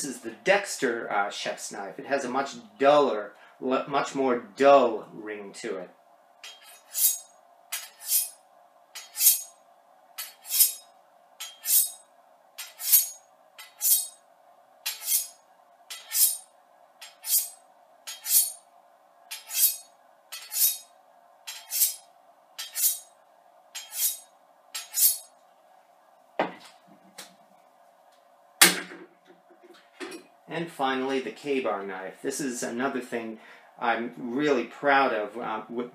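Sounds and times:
knife scraping on honing rod: 6.4s - 8.4s, 9.0s - 9.6s, 10.2s - 12.0s, 12.6s - 14.2s, 14.9s - 18.6s, 19.3s - 20.9s, 21.5s - 22.0s, 22.6s - 23.1s, 23.8s - 25.3s.

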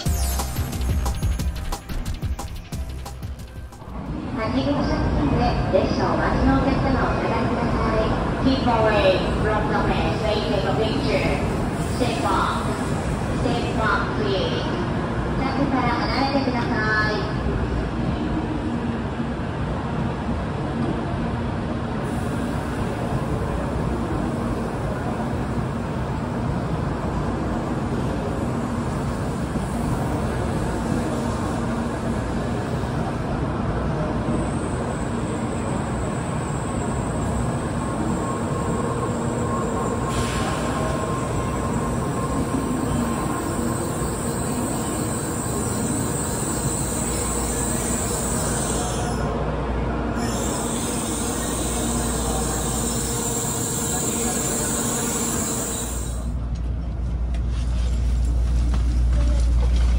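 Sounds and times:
high whine: 0.0s - 4.4s
train running noise: 0.0s - 59.9s.

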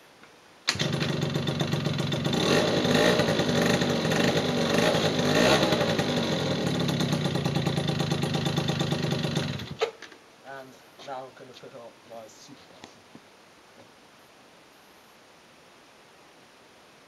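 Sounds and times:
scooter engine revving and idling: 0.7s - 9.8s.

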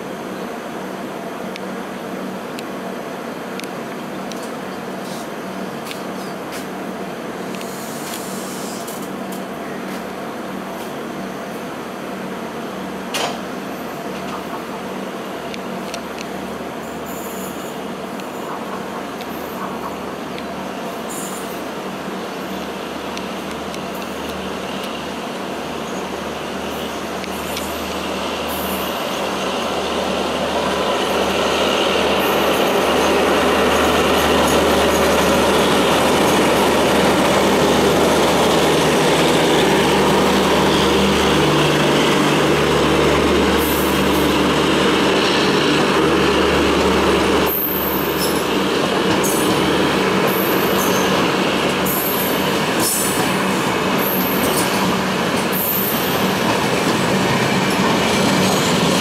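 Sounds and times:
diesel locomotive hum: 0.0s - 59.0s
train wheels rumbling on rails: 0.0s - 59.0s.

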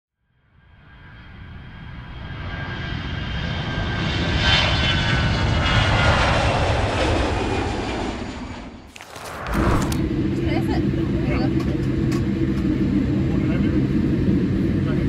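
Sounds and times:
jet engines running at high power: 1.2s - 15.0s.

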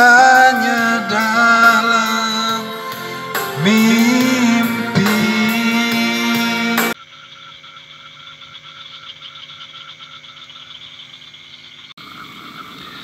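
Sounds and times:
frogs calling in chorus: 7.0s - 13.0s.

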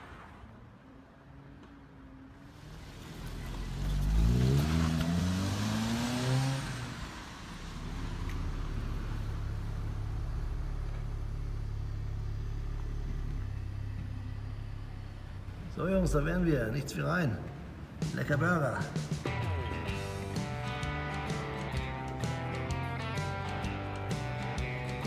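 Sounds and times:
van engine revving and idling: 2.5s - 16.8s, 19.0s - 25.0s.

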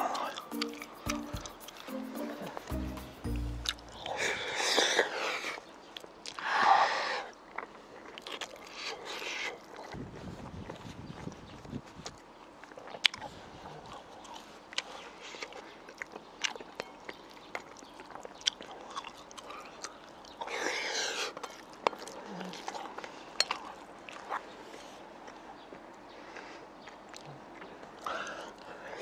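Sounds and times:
chopsticks clicking against bowl: 0.0s - 2.8s
person chewing food: 0.0s - 6.5s, 7.2s - 29.0s.

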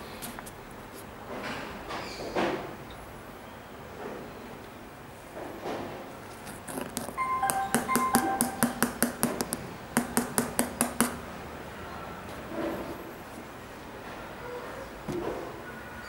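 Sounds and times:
background music: 7.2s - 9.0s
fast clicking beat: 7.2s - 11.2s.

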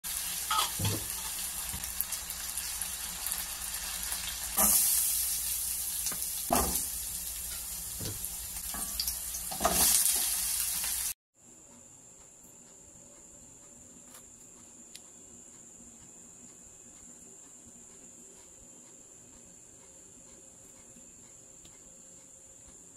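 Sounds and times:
vegetables sizzling in hot oil: 0.1s - 11.2s.

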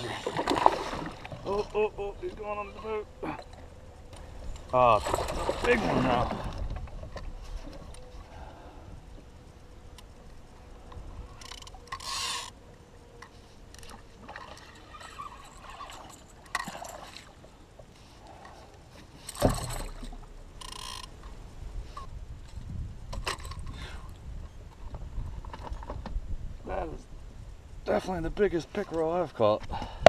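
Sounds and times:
fish splashing: 0.0s - 1.4s.

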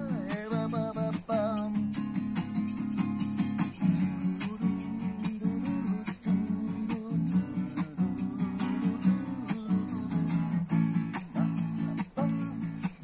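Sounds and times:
acoustic guitar strumming chords: 0.0s - 13.0s.

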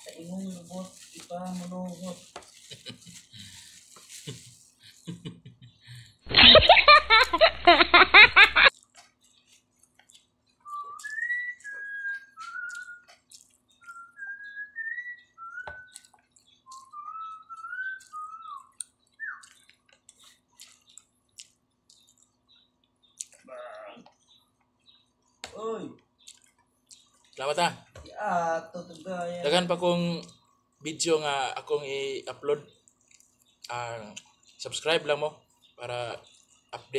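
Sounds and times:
person whistling a slow tune: 10.6s - 13.0s, 13.9s - 15.9s, 16.7s - 18.7s.

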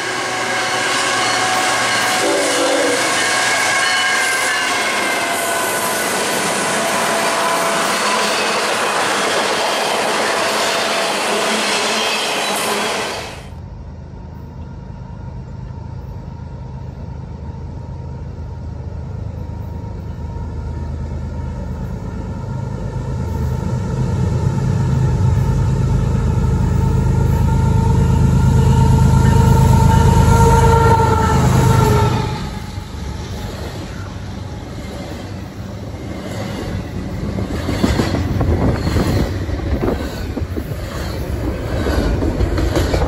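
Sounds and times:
train cars rolling on rails: 0.0s - 43.0s
diesel locomotive rumble: 13.4s - 43.0s.

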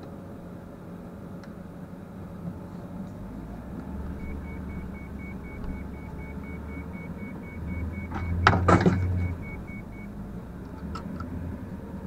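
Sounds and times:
truck engine and road noise: 0.0s - 12.0s
high beeping: 4.1s - 10.2s.

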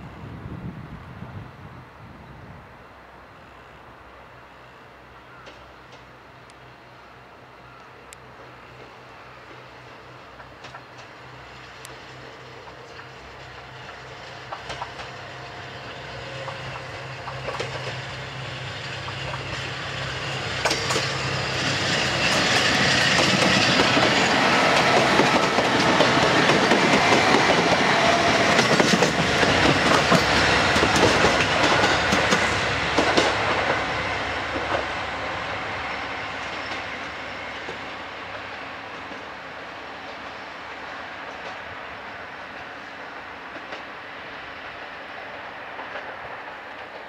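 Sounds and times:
diesel railcar engine: 0.1s - 47.0s
wheels clacking over rail joints: 10.3s - 35.0s.

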